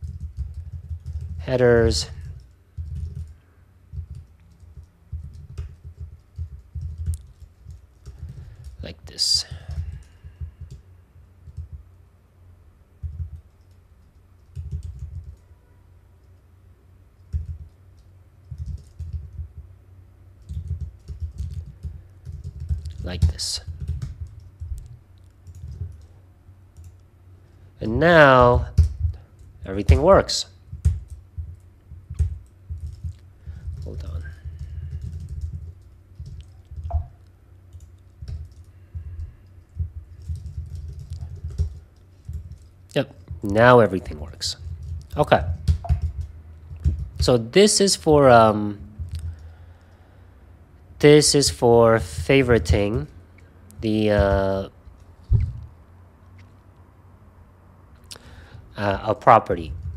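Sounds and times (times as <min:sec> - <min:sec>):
typing on computer keyboard: 0:00.0 - 0:11.9, 0:13.0 - 0:15.5, 0:17.2 - 0:19.8, 0:20.4 - 0:27.1, 0:28.4 - 0:47.4, 0:49.0 - 0:50.0, 0:59.6 - 0:59.9.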